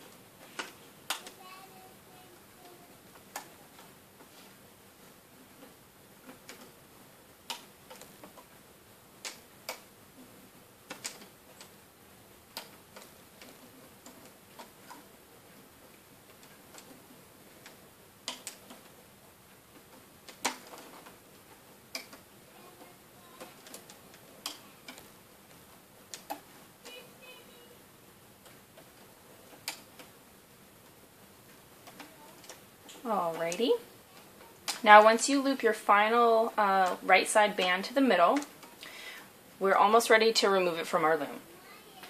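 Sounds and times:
small plastic clicks: 5.5s - 6.8s, 7.4s - 8.6s, 9.2s - 9.9s, 10.8s - 11.8s, 12.5s - 15.2s, 15.8s - 19.0s, 19.7s - 27.0s, 28.4s - 30.2s, 30.8s - 34.9s, 38.3s - 39.1s.

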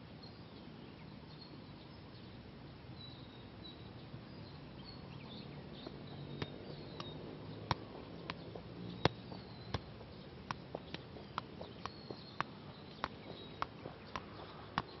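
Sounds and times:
faint bird chirps: 3.0s - 15.0s.

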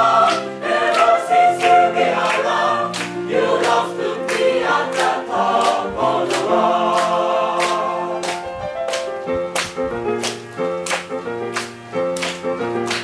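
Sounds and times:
chorus singing pop song: 0.0s - 8.4s.

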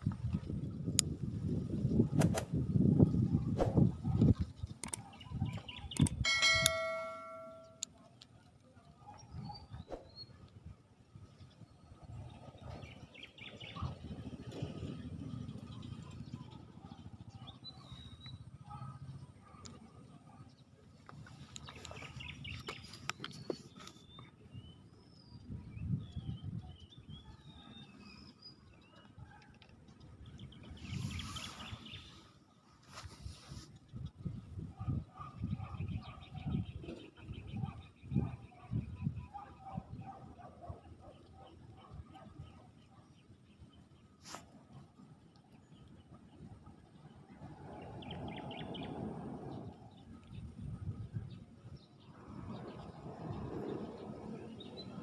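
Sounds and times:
sharp clicks: 5.9s - 6.8s
bright bell ding: 6.2s - 7.8s.

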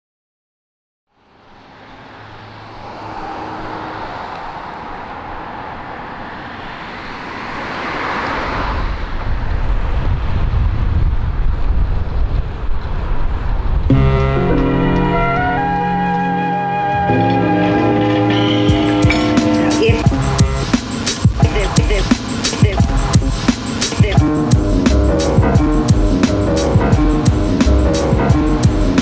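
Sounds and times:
car passing: 1.1s - 29.0s
roadside traffic noise: 1.1s - 29.0s
music: 13.9s - 29.0s
heavy uneven low rumble: 24.2s - 29.0s.

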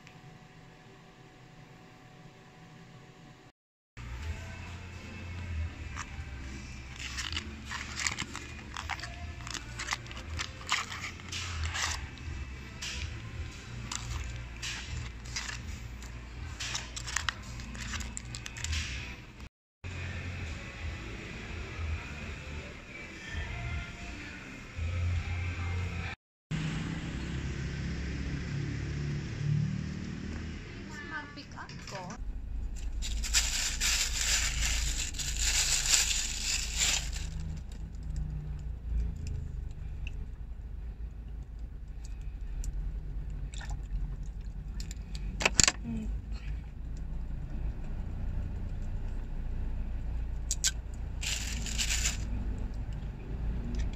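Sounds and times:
plastic bag rustling: 6.9s - 12.1s, 32.8s - 37.8s, 51.2s - 52.3s
foil pouches crinkling: 6.9s - 12.2s, 16.6s - 18.7s, 32.8s - 37.8s, 51.2s - 52.3s
low steady hum: 31.2s - 53.9s.

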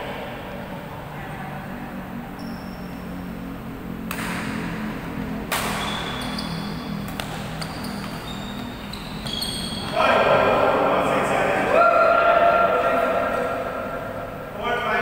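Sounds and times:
steady low hum: 0.0s - 15.0s
shoes squeaking on court floor: 2.4s - 3.4s, 5.6s - 10.2s
rackets hitting shuttlecock: 4.0s - 4.8s, 5.4s - 6.4s, 7.0s - 8.2s.

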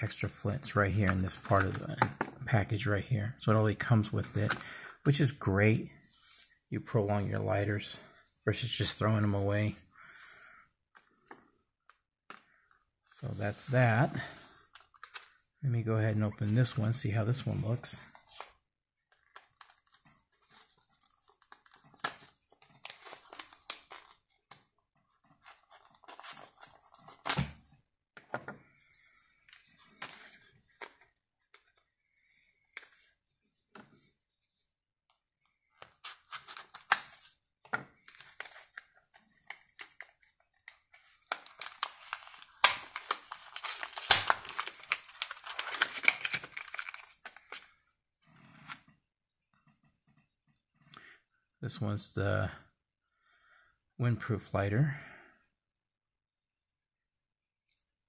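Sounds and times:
plastic packaging crinkling: 41.2s - 47.7s.

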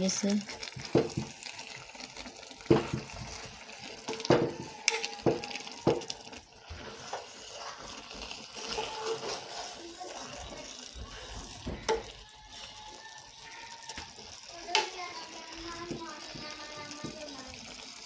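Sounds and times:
metal spoon scraping pot: 4.0s - 10.7s.

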